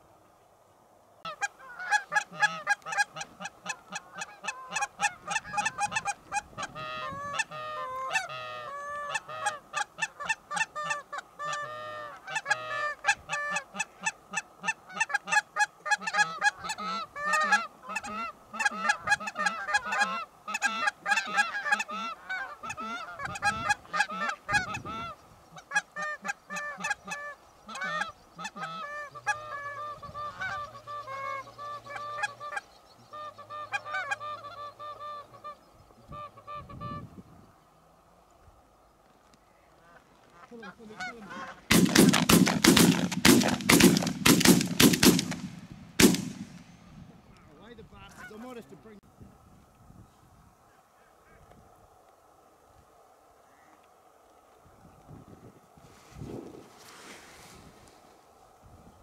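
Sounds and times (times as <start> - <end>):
geese honking: 1.2 - 37.0, 39.4 - 46.7, 47.3 - 48.8.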